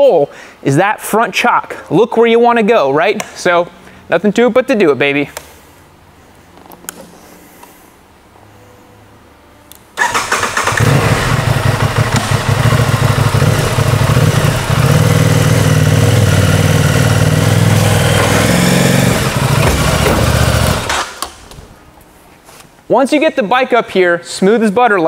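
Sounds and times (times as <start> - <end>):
motorcycle engine starting and running: 10.0 - 21.3.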